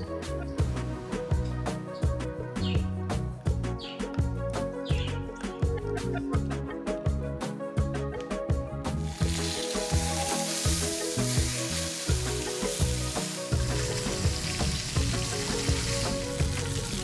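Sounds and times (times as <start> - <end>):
background music with steady beat: 0.0 - 17.0
food sizzling in hot oil: 9.1 - 17.0.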